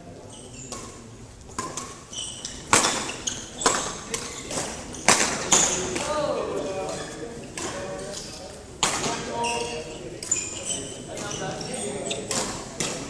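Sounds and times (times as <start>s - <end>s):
shoe squeaks on court floor: 0.2s - 6.0s, 9.1s - 12.6s
racket hitting shuttlecock: 0.7s - 6.1s, 8.8s - 9.3s, 12.1s - 13.0s.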